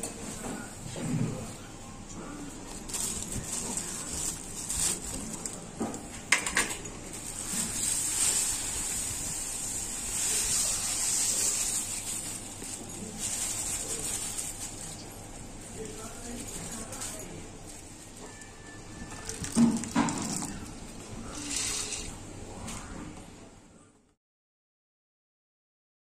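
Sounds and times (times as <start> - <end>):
plastic bag crinkling: 2.4 - 22.2
sugar pouring into bubbling liquid: 7.2 - 12.7.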